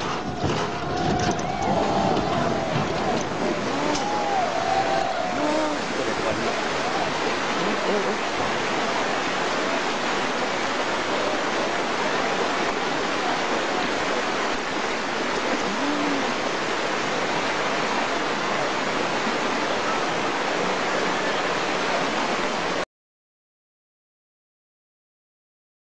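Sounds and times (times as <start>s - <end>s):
floodwater rushing: 0.0s - 22.8s.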